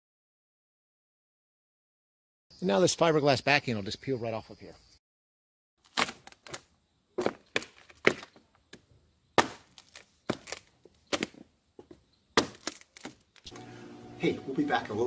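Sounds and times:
tool knocking and wood cracking: 9.4s - 13.2s.

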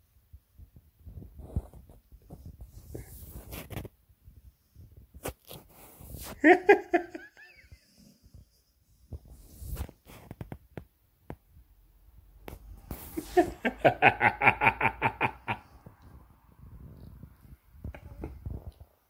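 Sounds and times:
man laughing: 6.4s - 8.0s, 13.1s - 15.8s.

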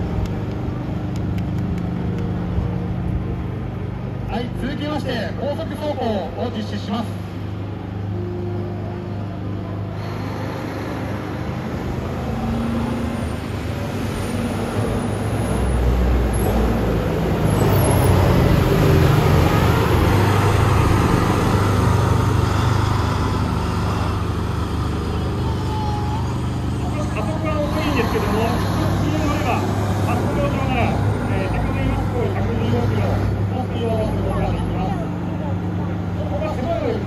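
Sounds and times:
diesel truck driving past: 0.0s - 37.0s.

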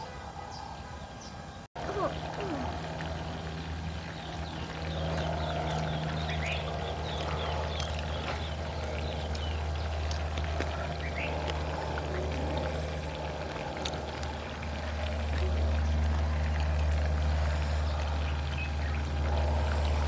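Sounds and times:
birds chirping: 0.0s - 20.0s
steady low hum: 0.0s - 20.0s.

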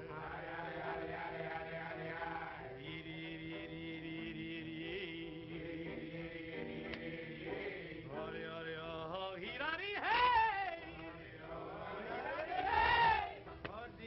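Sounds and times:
jazz band music: 0.9s - 9.0s.

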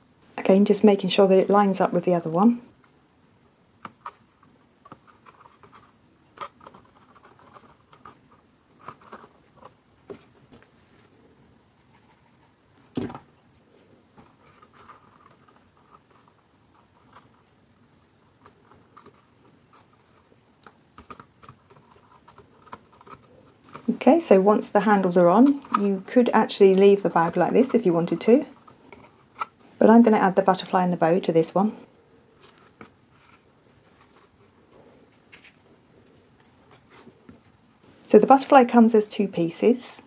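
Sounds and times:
paper rustling: 3.9s - 11.2s, 11.8s - 17.5s, 32.3s - 37.5s.

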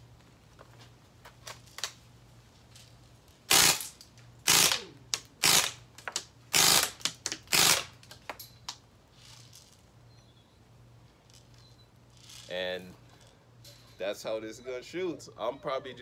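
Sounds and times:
bb rifle burst shots: 3.5s - 5.8s, 6.5s - 8.0s.

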